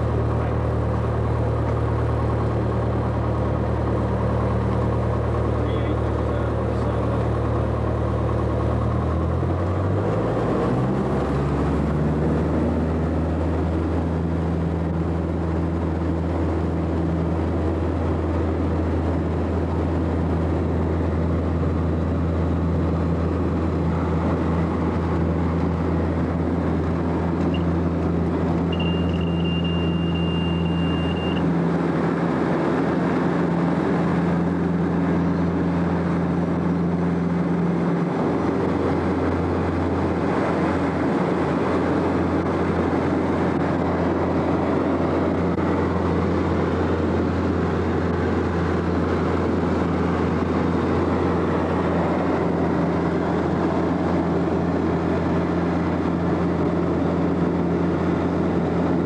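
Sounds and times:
airplane engine and propeller: 0.0s - 59.0s
steady high tone: 28.7s - 31.4s.

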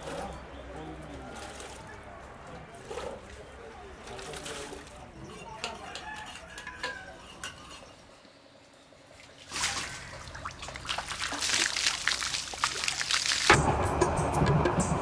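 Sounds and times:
water splashing on body and ground: 9.2s - 13.6s
music: 13.6s - 15.0s.

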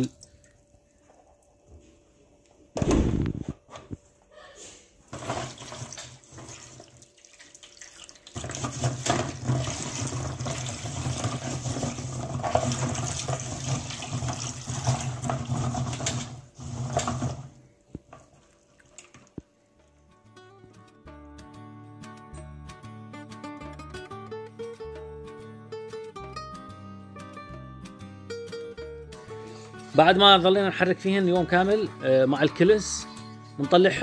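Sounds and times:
water pouring into plastic bowl: 5.1s - 19.4s.

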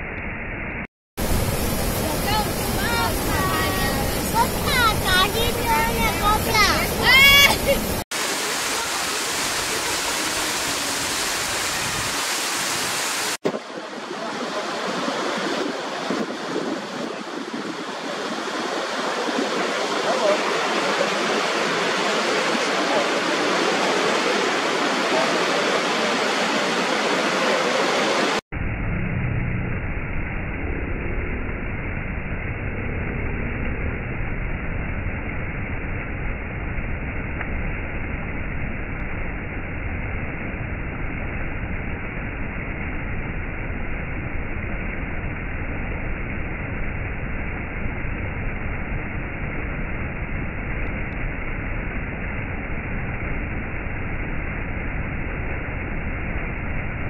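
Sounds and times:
dull deep rushing water: 0.8s - 28.4s, 29.4s - 57.0s
waterfall rushing: 1.2s - 28.4s.

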